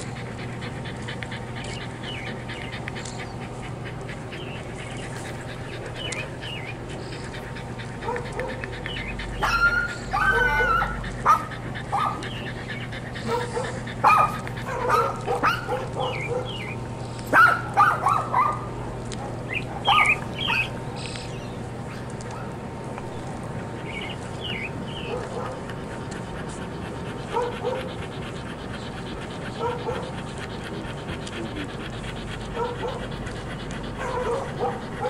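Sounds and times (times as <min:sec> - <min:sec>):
steady low hum: 0:00.0 - 0:35.0
small dog yipping and whimpering: 0:09.4 - 0:12.5.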